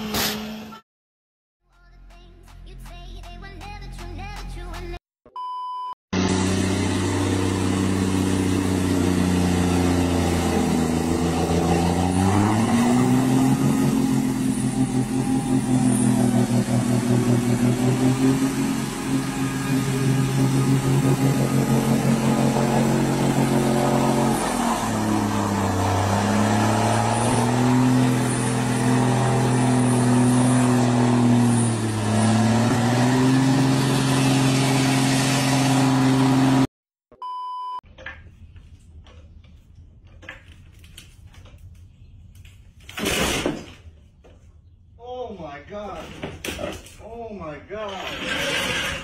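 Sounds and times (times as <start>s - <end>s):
short beep: 5.3s - 6.0s, 37.1s - 37.8s
heavy diesel truck engine labouring: 6.2s - 36.7s.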